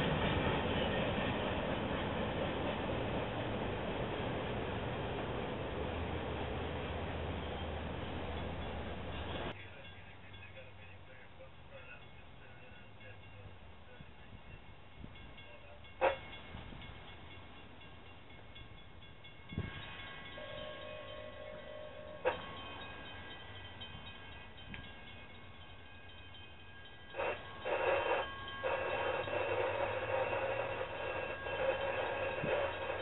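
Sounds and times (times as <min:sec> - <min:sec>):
distant locomotive horn blasts: 0:15.0 - 0:17.0, 0:19.5 - 0:23.4, 0:27.1 - 0:33.0.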